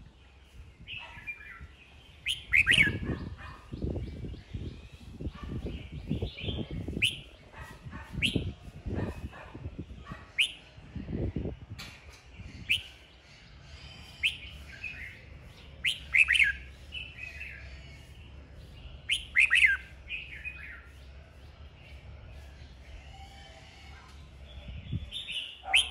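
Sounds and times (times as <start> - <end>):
bird chirping phrases: 0.0 - 25.9.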